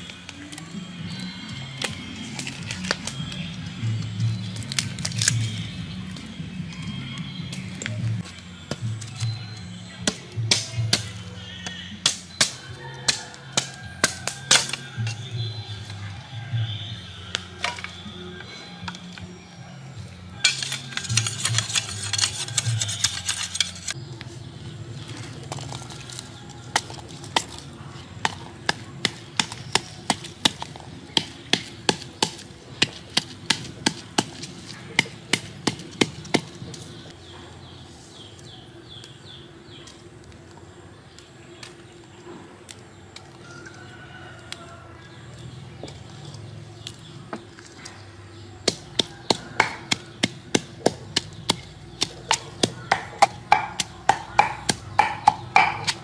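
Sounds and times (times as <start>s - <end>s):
pestle pounding in wooden mortar: 48.6s - 56.0s.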